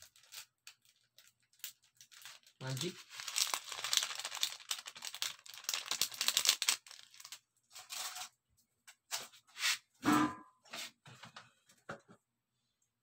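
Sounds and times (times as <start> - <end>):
plastic packet crinkling: 0.0 - 8.1.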